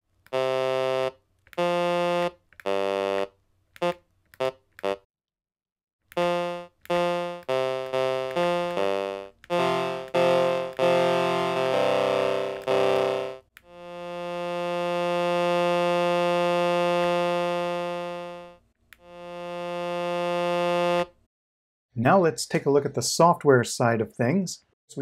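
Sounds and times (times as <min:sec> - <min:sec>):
buzzy synthesizer notes: 0:00.4 - 0:05.0, 0:06.2 - 0:21.1.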